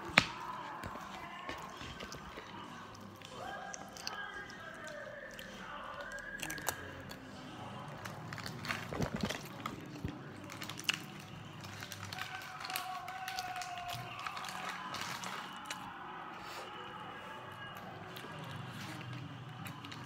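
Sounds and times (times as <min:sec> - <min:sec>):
crackling handling noise: 0:08.0 - 0:15.8.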